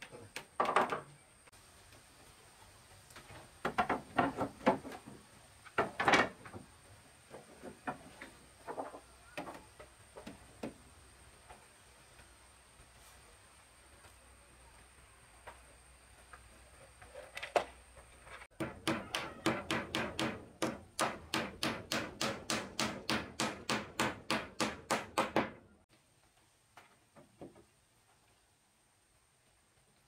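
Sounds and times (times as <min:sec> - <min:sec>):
sharp knocks on wood: 0:18.6 - 0:25.6.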